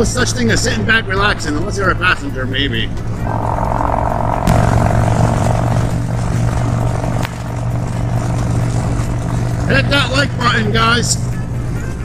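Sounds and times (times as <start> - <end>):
motorcycle engine cruising: 3.0 - 10.2.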